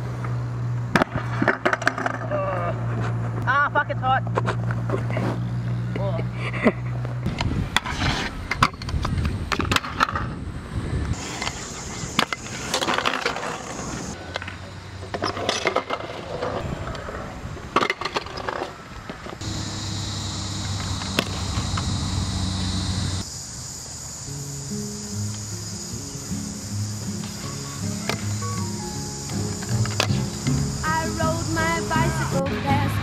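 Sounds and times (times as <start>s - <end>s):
scooter and rider hitting ground: 0.9s - 3.3s, 11.2s - 19.9s, 20.6s - 22.0s, 29.5s - 30.6s
scooter wheels rolling on concrete: 4.4s - 23.3s, 27.0s - 33.0s.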